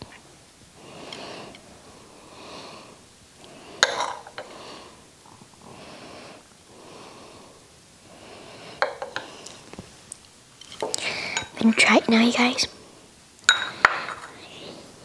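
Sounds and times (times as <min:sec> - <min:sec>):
soft breathing: 0:00.8 - 0:10.0, 0:10.8 - 0:11.6, 0:12.7 - 0:15.0
spoon clinking against dishes: 0:13.5 - 0:14.4.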